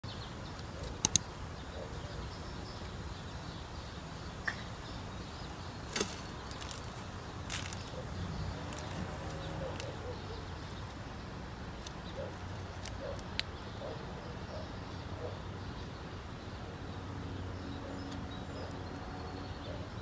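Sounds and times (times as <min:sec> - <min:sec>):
sharp clicks and taps: 0:00.9 - 0:01.3.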